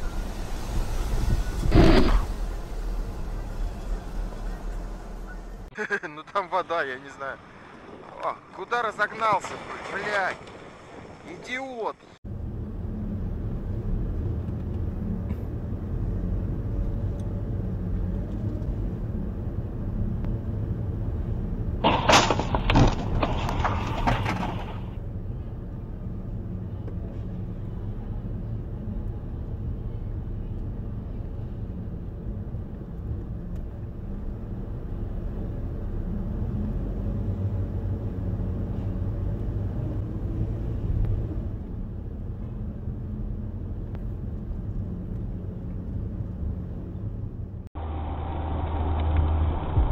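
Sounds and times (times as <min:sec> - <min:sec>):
vehicle collision crashing: 0:21.8 - 0:25.0
car driving on wet road: 0:26.1 - 0:47.2.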